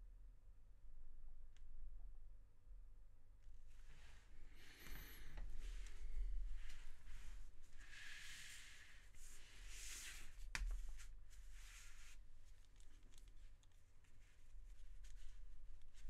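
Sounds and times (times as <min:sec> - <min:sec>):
paper rustling on a desk: 0:05.0 - 0:16.0.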